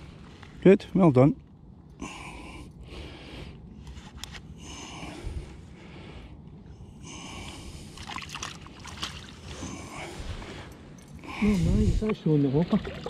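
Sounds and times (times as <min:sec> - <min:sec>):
person breathing: 0:02.0 - 0:08.3, 0:09.4 - 0:12.1.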